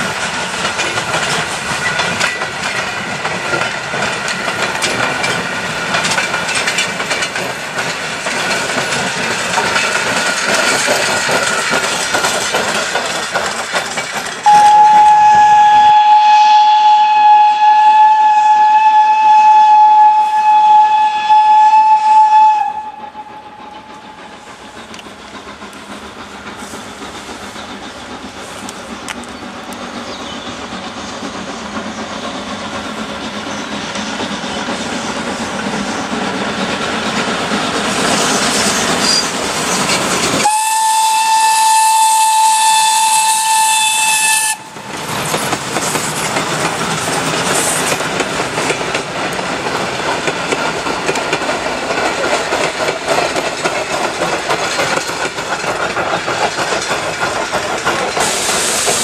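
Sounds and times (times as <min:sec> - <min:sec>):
steam locomotive running with hiss: 0:00.0 - 0:59.0
steam whistle blast: 0:14.4 - 0:24.0, 0:40.4 - 0:44.8.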